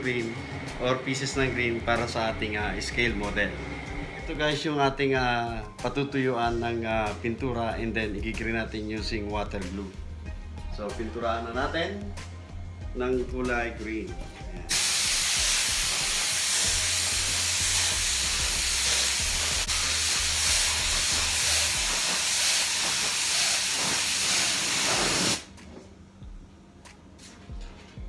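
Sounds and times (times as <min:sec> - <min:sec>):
spray gun hissing: 0:14.7 - 0:25.5.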